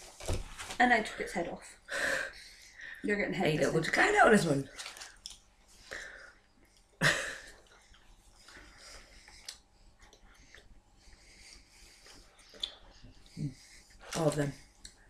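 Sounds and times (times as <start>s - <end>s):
person breathing: 1.8s - 3.1s, 5.8s - 14.2s
chewing: 4.8s - 5.5s, 7.5s - 13.9s.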